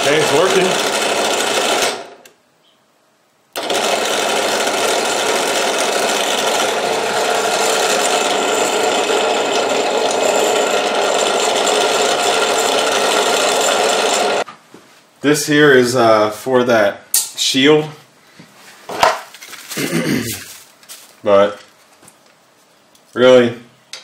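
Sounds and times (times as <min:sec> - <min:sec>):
drill press motor humming: 0:00.0 - 0:02.4, 0:03.6 - 0:14.5.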